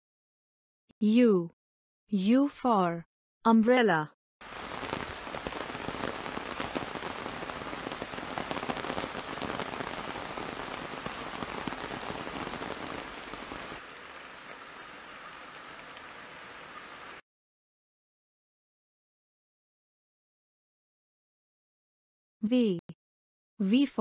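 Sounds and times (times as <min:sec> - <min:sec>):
rain on an umbrella: 0:04.4 - 0:17.2.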